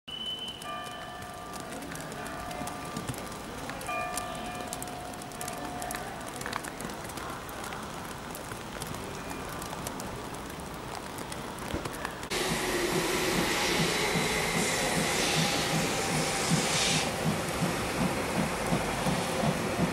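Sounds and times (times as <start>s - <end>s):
steam hissing from locomotive: 12.3s - 19.9s.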